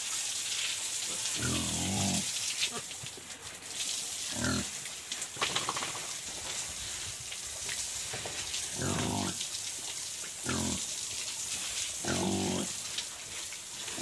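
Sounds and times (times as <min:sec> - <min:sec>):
hose spraying water: 0:00.0 - 0:14.0
pig grunting: 0:01.3 - 0:02.9, 0:04.3 - 0:04.7, 0:08.7 - 0:09.4, 0:10.4 - 0:10.9, 0:12.0 - 0:12.8.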